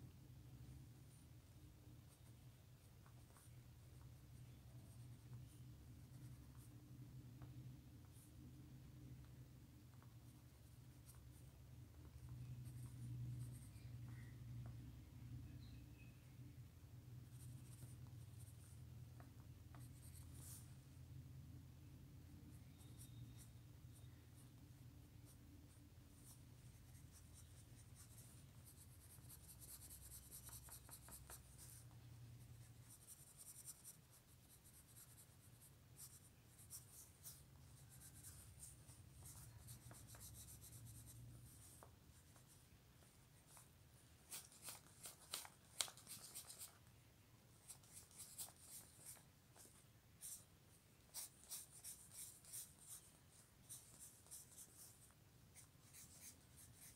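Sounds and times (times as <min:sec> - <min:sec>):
pencil scratching on paper: 0:03.0 - 0:06.8, 0:25.2 - 0:42.7, 0:47.6 - 0:50.5, 0:51.1 - 0:56.9.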